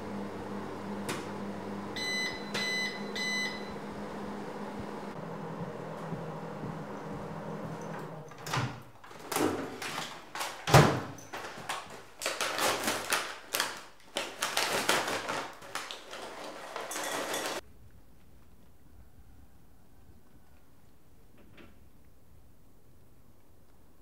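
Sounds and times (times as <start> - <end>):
paper bag crinkling and tearing: 9.0 - 10.7, 11.3 - 17.6.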